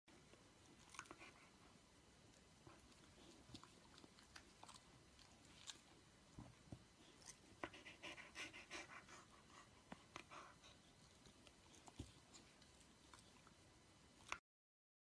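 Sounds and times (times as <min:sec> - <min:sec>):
dog breathing: 0:07.6 - 0:11.0.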